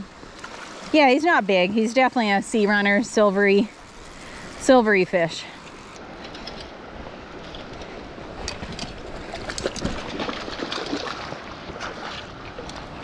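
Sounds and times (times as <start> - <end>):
stream flowing: 0.0 - 13.0
fish splashing at water surface: 9.3 - 12.8.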